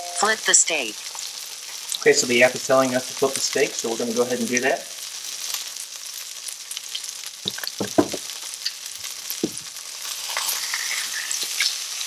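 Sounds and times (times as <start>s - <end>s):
steak sizzling in a pan: 0.0s - 12.0s
tongs knocking against pan: 7.5s - 8.3s, 9.4s - 9.7s.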